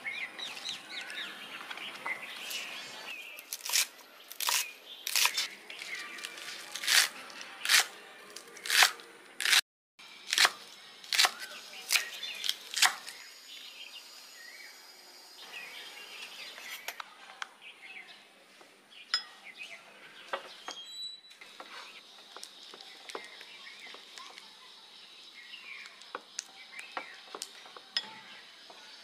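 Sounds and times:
faint bird chirping: 11.4 - 29.0.

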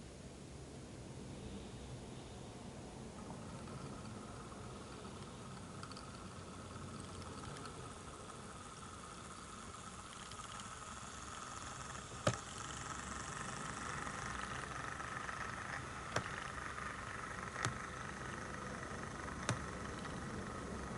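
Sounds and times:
diesel locomotive engine hum: 10.9 - 20.9.

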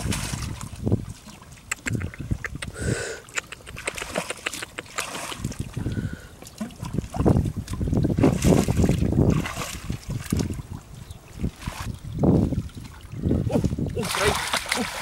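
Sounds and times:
hands splashing in shallow water: 3.4 - 5.8, 14.0 - 15.0.

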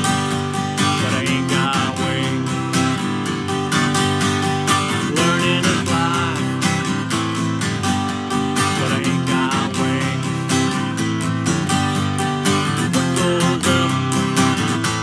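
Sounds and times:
acoustic guitar strummed: 0.0 - 15.0.

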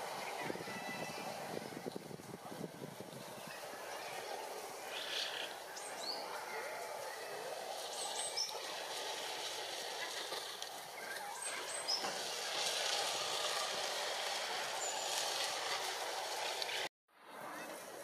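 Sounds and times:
rushing background noise: 0.0 - 18.0
starlings calling: 3.5 - 6.4, 7.0 - 10.4, 11.0 - 16.9.

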